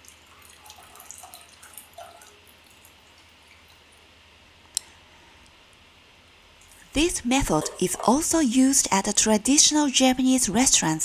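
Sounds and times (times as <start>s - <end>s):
liquid dripping into metal bowl: 0.0s - 4.0s, 7.4s - 8.4s.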